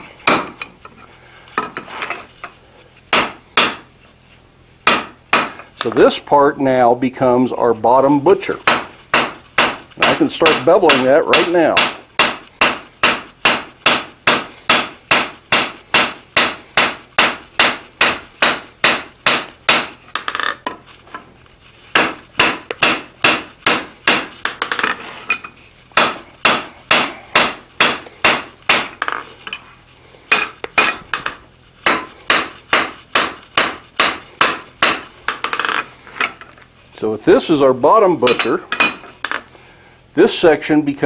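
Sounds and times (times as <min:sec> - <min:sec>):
hammer striking steel on anvil: 0:03.1 - 0:03.8, 0:04.9 - 0:05.7, 0:08.6 - 0:20.5, 0:22.0 - 0:25.4, 0:26.0 - 0:29.6, 0:30.3 - 0:35.8, 0:38.2 - 0:39.4.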